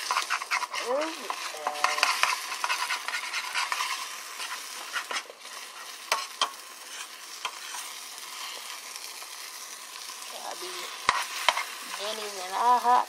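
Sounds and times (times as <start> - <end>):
spatula clicking on pan: 0.0 - 5.2, 6.0 - 9.3, 10.9 - 12.0
eggs sizzling in a frying pan: 0.0 - 13.0
spatula scraping a pan: 0.0 - 13.0.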